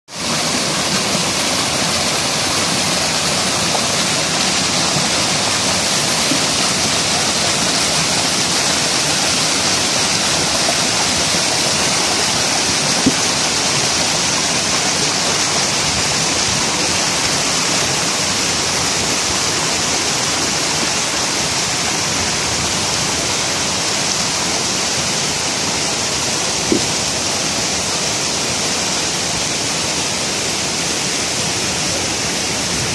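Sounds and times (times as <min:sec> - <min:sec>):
water rushing over rocks: 0:00.1 - 0:32.9.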